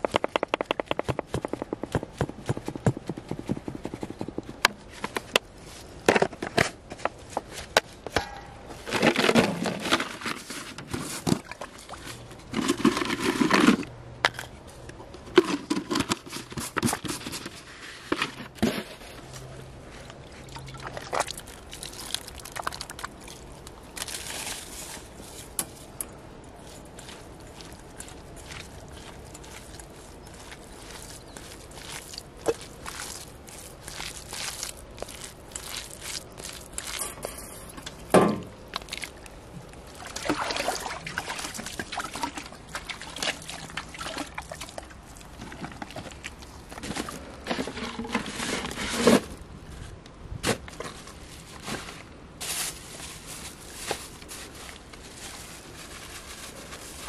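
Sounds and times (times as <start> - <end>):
hands mixing bait in bowl: 20.4 - 48.9.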